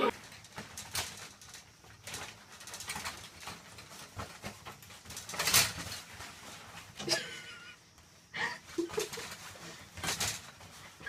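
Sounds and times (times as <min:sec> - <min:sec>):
shower curtain rustling: 0:00.0 - 0:11.0
curtain rings clicking on rod: 0:00.1 - 0:06.2
scrapes on shower curtain: 0:02.0 - 0:07.7, 0:08.6 - 0:11.0.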